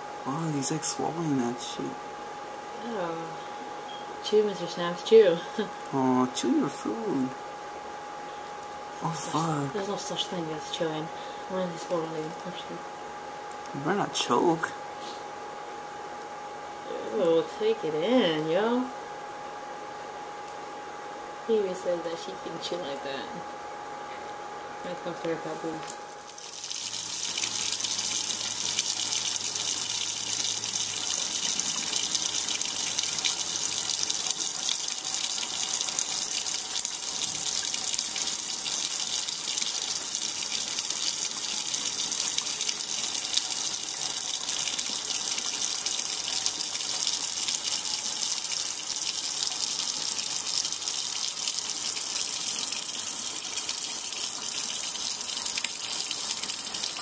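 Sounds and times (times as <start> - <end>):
tap water running into sink: 26.3 - 57.0.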